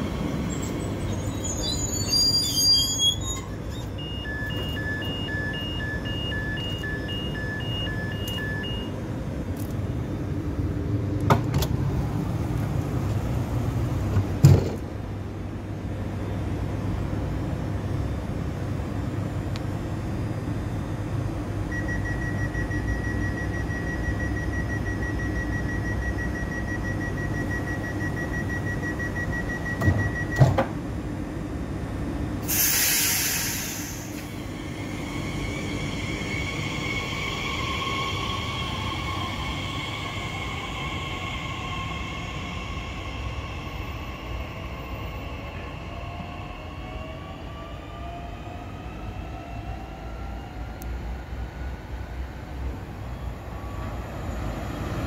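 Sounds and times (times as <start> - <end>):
rapid door warning beeps: 3.7 - 9.0, 21.8 - 30.5
two-tone beeping: 3.8 - 8.9
train equipment humming: 21.0 - 49.0
sliding doors shutting with thump: 29.8 - 30.8
air hiss: 32.4 - 36.9.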